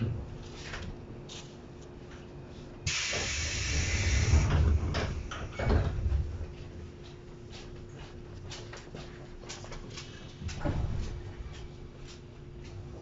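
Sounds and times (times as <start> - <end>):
train releasing compressed air: 2.8 - 5.5.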